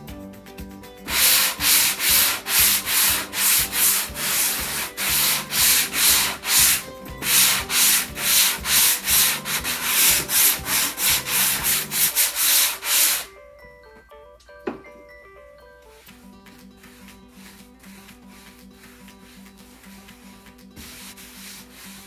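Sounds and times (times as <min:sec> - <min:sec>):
sandpaper hand sanding: 0:01.1 - 0:13.3, 0:16.8 - 0:22.0.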